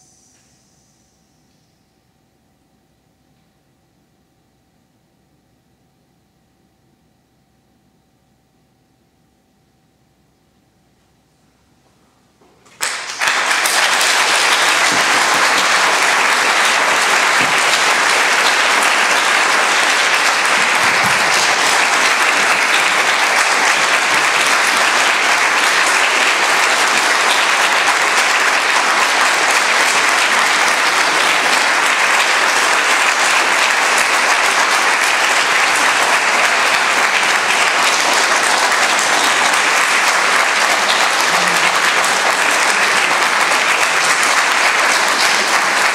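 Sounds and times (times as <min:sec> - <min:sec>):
audience applause: 0:12.7 - 0:45.9.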